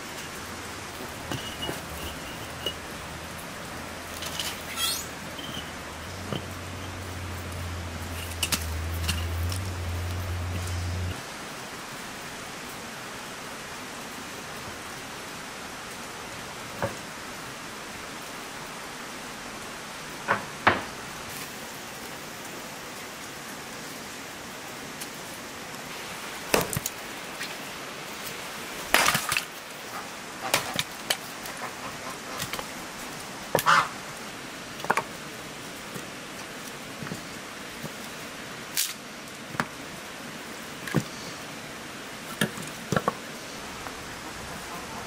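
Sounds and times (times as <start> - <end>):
steady hiss: 0.0 - 45.0
bricks knocking together: 1.2 - 2.9.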